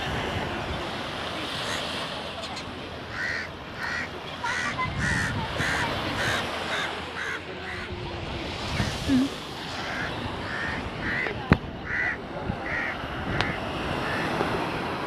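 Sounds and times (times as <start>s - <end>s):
surf and wind hiss: 0.0s - 15.0s
crow cawing: 3.1s - 7.9s, 9.8s - 14.3s.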